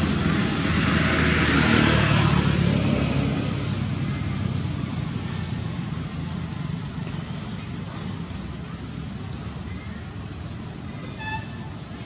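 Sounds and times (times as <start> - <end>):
road noise: 0.0 - 12.0.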